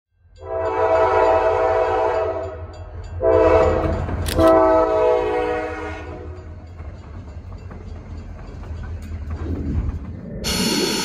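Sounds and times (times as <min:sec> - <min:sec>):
freight train rumble: 0:00.2 - 0:11.0
locomotive air horn blasts: 0:00.4 - 0:06.4.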